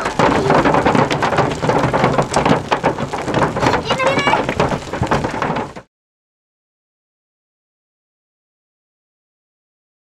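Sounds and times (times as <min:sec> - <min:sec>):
hailstones falling: 0:00.0 - 0:05.9.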